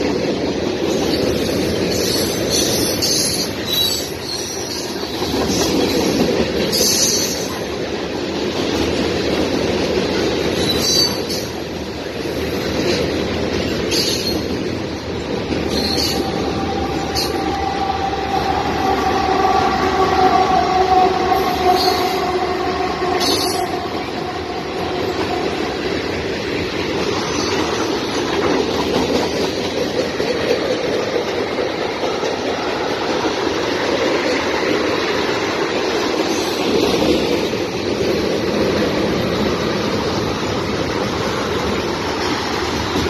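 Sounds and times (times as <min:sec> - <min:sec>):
freight cars rumbling on rails: 0:00.0 - 0:43.0
high wheel squeal: 0:01.9 - 0:05.6, 0:15.7 - 0:23.8.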